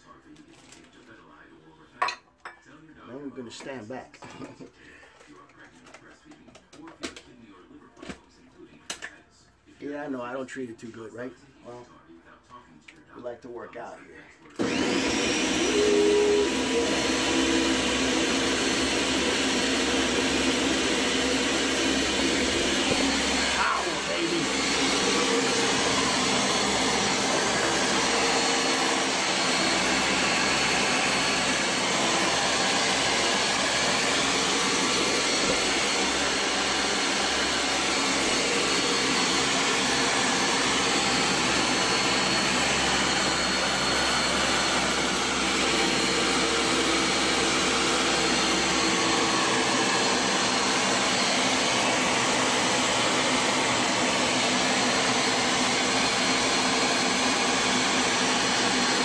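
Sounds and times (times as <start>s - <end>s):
blender running: 14.6s - 59.0s.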